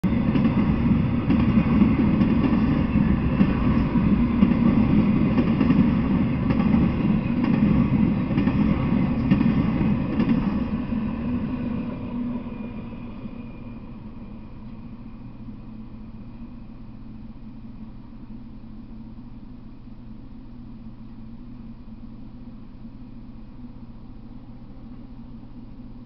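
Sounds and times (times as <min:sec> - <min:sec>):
freight train wheels rumbling on rails: 0:00.0 - 0:18.6.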